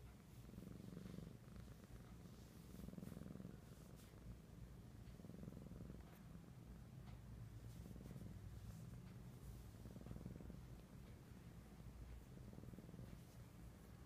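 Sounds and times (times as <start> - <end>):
kittens purring: 0.0 - 14.0.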